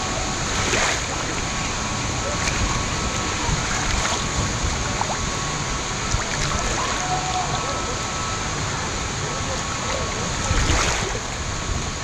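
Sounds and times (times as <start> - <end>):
low rumble on microphone: 0.0 - 8.0
river water lapping: 0.0 - 12.0.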